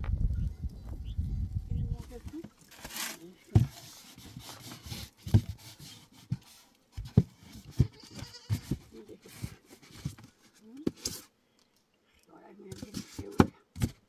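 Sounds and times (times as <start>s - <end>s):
goat bleating: 7.8s - 8.6s.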